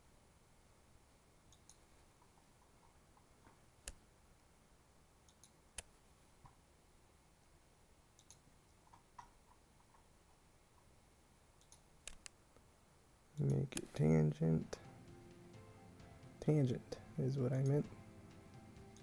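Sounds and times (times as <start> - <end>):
computer mouse clicks: 1.5 - 1.9, 5.2 - 6.0, 8.2 - 10.0, 11.6 - 12.4.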